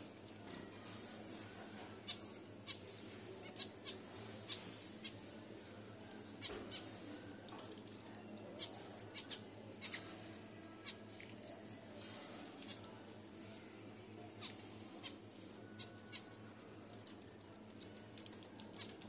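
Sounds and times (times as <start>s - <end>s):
small birds chirping: 1.9s - 5.3s, 7.8s - 13.6s.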